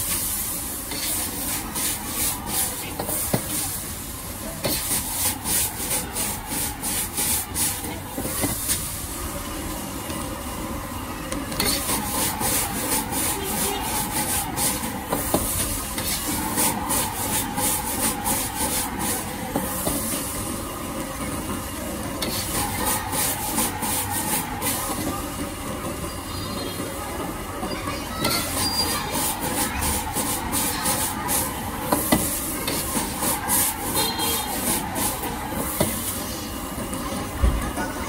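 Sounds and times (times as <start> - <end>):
gas burner hissing: 0.0 - 38.0
metal ladle scraping a wok: 0.8 - 2.3, 11.6 - 18.8.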